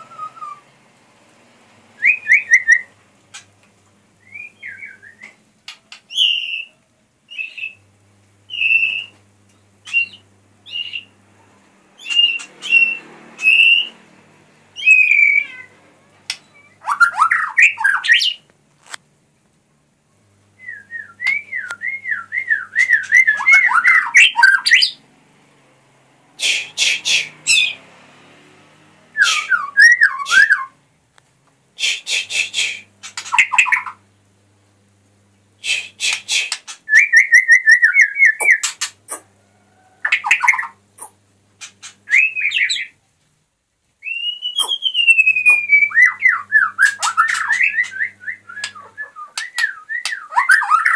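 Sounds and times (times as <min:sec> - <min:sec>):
songbird whistling and warbling: 0:00.0 - 0:00.7, 0:04.2 - 0:05.4, 0:06.0 - 0:07.8, 0:08.5 - 0:09.2, 0:09.8 - 0:11.1, 0:12.0 - 0:14.0, 0:14.8 - 0:15.6, 0:16.3 - 0:18.4, 0:20.6 - 0:25.0, 0:29.2 - 0:30.8, 0:35.7 - 0:39.2, 0:42.1 - 0:43.0, 0:44.0 - 0:50.9
bird harsh chattering: 0:31.8 - 0:34.0, 0:44.5 - 0:49.6.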